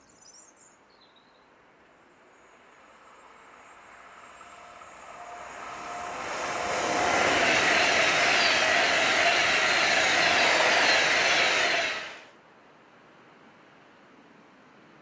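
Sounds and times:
electric train passing at speed: 0:01.8 - 0:12.4.

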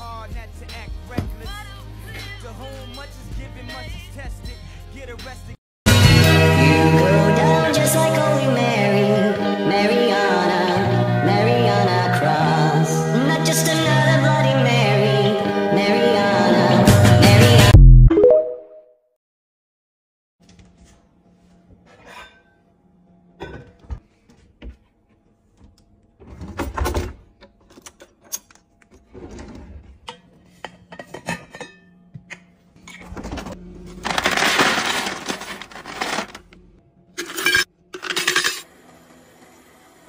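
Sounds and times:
clattering noise: 0:26.2 - 0:36.6
metal tumbler and lid clinking: 0:30.9 - 0:32.0, 0:37.2 - 0:38.7.

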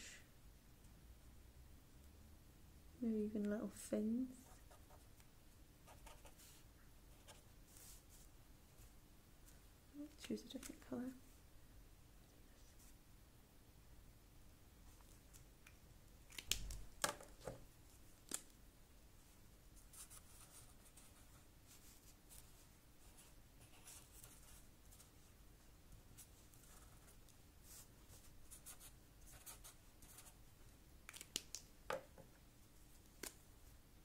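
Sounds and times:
marker scratching on paper: 0:05.9 - 0:08.0, 0:28.5 - 0:30.4.

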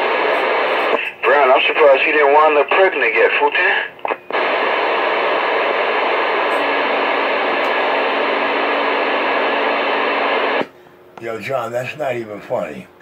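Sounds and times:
radio static hiss: 0:00.0 - 0:10.7.

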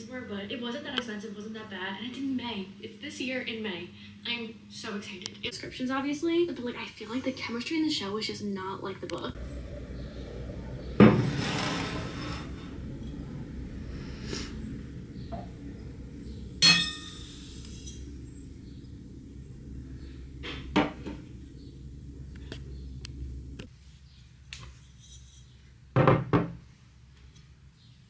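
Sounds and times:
steady low hum: 0:00.0 - 0:23.8
dishes clinking: 0:16.6 - 0:17.9.

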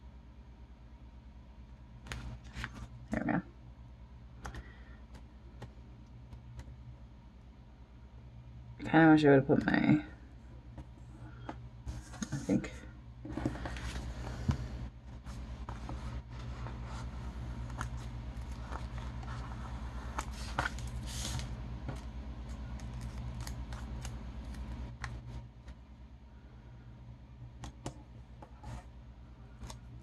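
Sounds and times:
steady low hum: 0:00.0 - 0:30.0
paper rustling: 0:02.1 - 0:02.9, 0:13.3 - 0:14.6, 0:15.2 - 0:25.3.

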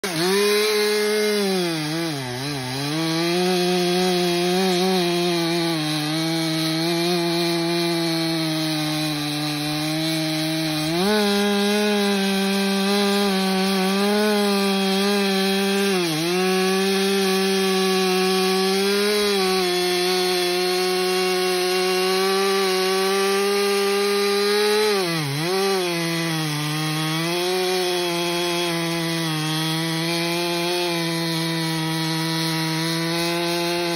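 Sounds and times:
chainsaw cutting log: 0:00.0 - 0:33.9.

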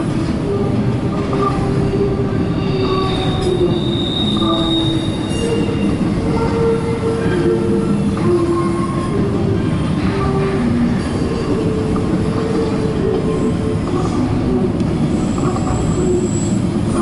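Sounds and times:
train wheels rumbling on rail: 0:00.0 - 0:17.0
train wheel squeal: 0:01.1 - 0:17.0.

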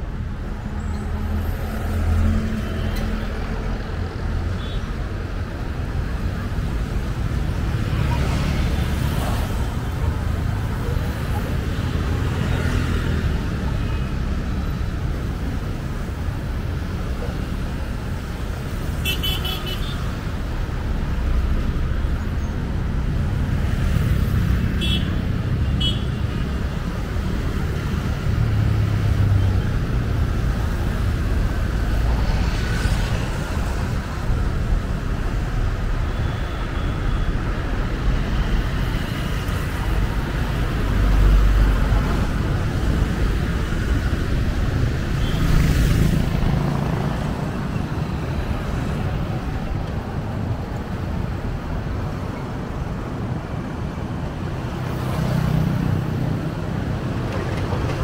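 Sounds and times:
road noise rumble: 0:00.0 - 0:58.0
vehicles passing: 0:00.0 - 0:58.0.

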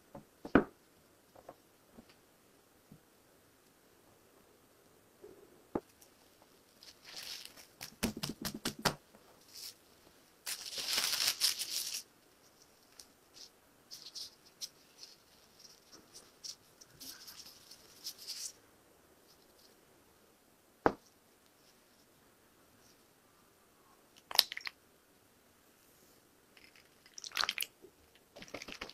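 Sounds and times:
plastic gloves crinkling: 0:06.0 - 0:09.8, 0:10.4 - 0:18.6
cling film rustling: 0:06.8 - 0:09.8, 0:10.4 - 0:18.6
hands patting dough: 0:07.5 - 0:09.0.

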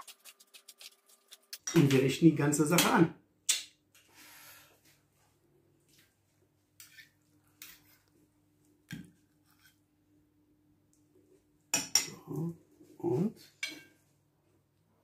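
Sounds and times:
faint steady hum: 0:03.2 - 0:15.0.

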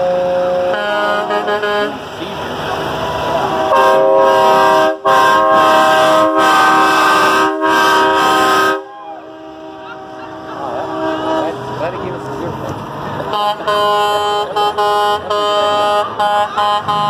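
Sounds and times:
truck air horns blowing: 0:00.0 - 0:02.4, 0:03.0 - 0:12.2, 0:13.2 - 0:17.0.

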